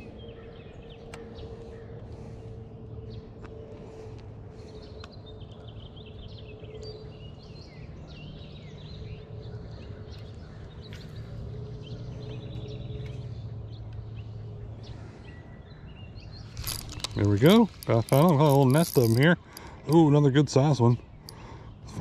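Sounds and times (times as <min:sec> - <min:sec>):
birds singing and chirping: 0:00.0 - 0:22.0
steady low hum: 0:00.0 - 0:22.0.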